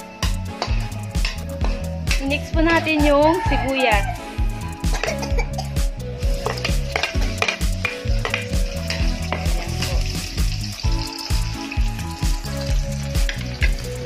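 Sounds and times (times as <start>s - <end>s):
onions sizzling in hot oil: 6.0s - 14.0s.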